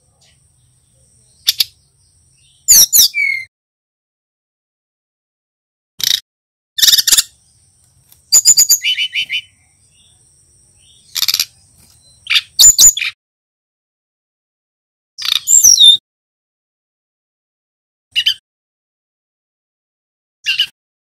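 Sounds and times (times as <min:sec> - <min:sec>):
bird singing chirps and whistles: 0:02.4 - 0:03.5, 0:06.8 - 0:07.4, 0:08.3 - 0:10.2, 0:10.8 - 0:13.2, 0:15.2 - 0:16.0, 0:18.2 - 0:18.4, 0:20.4 - 0:20.7.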